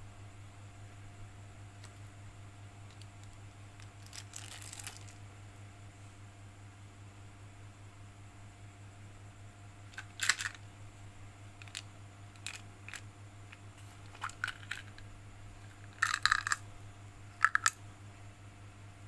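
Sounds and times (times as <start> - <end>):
faint steady hum: 0.0 - 19.0
candies rattling in plastic container: 3.0 - 5.2, 9.9 - 10.6, 11.6 - 11.8, 12.4 - 13.0, 14.0 - 15.0, 15.7 - 16.6, 17.4 - 17.8.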